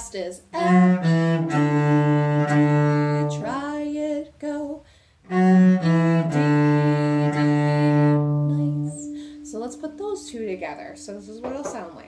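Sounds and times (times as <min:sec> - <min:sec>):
bowed cello phrase: 0:00.5 - 0:04.0, 0:05.3 - 0:11.4
woman singing: 0:03.1 - 0:04.9, 0:08.2 - 0:12.0.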